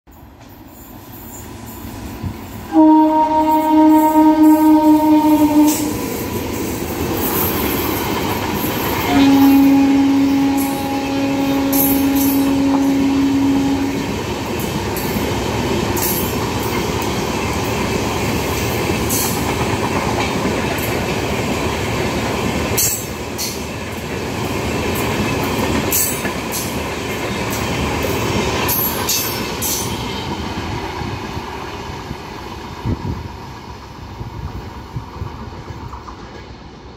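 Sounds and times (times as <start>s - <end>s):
train coaches rumbling past: 0.1s - 36.9s
train horn blasts: 2.7s - 6.1s, 9.0s - 14.2s.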